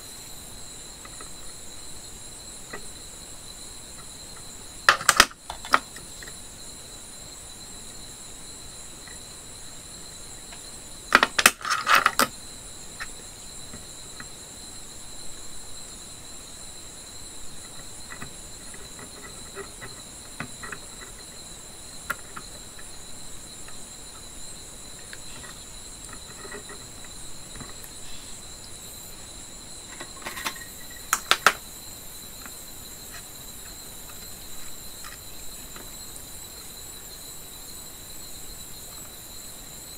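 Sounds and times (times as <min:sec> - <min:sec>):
high-pitched tonal whine: 0:11.8 - 0:39.9.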